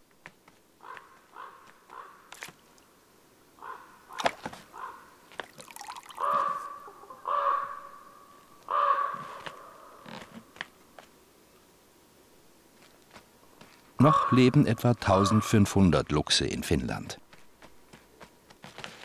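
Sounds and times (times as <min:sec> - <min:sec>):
crow cawing: 0:00.8 - 0:02.3, 0:03.6 - 0:05.2, 0:06.0 - 0:10.1, 0:14.0 - 0:15.6.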